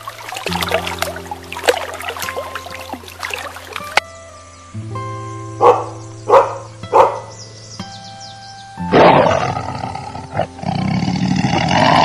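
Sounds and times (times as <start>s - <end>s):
background music with held tones: 0.0s - 11.1s
faint bird chirps: 4.3s - 8.9s
dog barking: 5.6s - 7.3s
tiger roaring: 8.9s - 12.0s.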